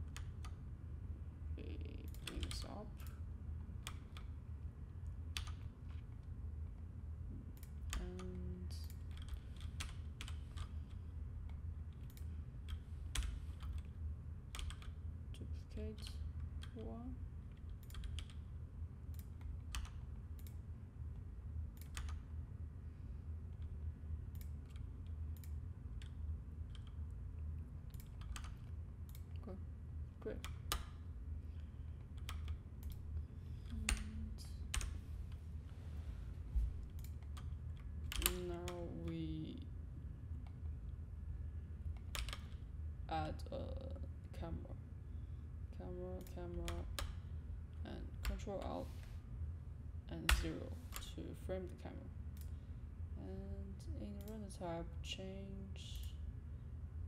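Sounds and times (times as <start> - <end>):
low background hum: 0.0 - 57.0
keyboard keys clicking: 14.5 - 15.0, 17.5 - 18.4.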